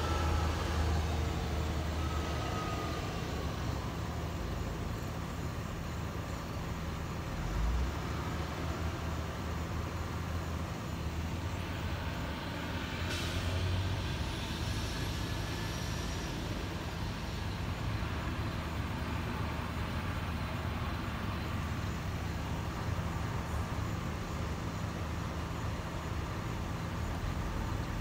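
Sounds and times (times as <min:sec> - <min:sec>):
diesel engine running: 0:00.0 - 0:28.0
air brakes hissing: 0:12.8 - 0:17.5.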